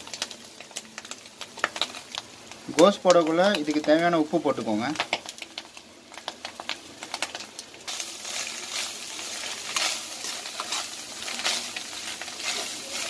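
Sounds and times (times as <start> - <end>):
vegetables sizzling in a pan: 0.0 - 13.0
spatula scraping a pan: 7.9 - 13.0.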